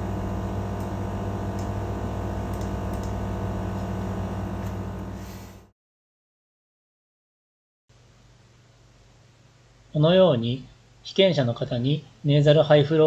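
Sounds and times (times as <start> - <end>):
low electrical hum: 0.0 - 5.7, 7.9 - 13.0.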